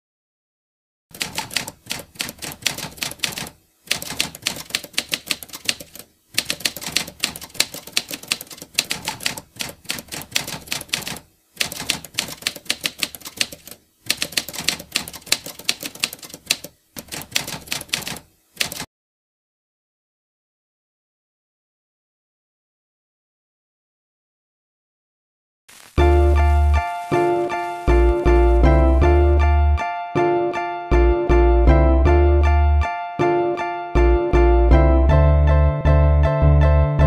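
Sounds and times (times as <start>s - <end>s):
typewriter key clacks: 1.1s - 18.9s.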